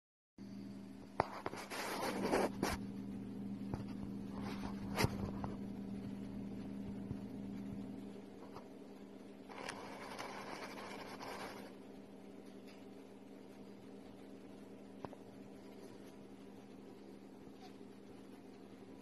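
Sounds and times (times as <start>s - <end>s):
steady low hum: 0.4s - 19.0s.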